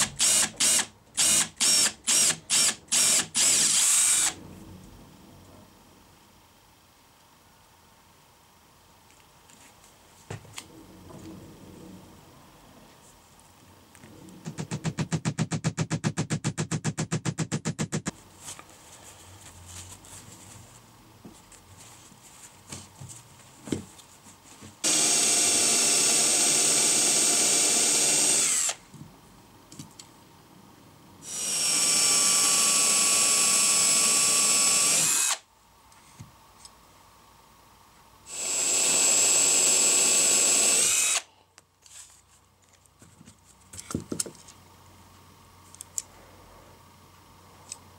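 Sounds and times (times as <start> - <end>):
electric drill boring wood: 0.0 - 4.4, 24.8 - 28.8, 31.2 - 35.4, 38.3 - 41.3.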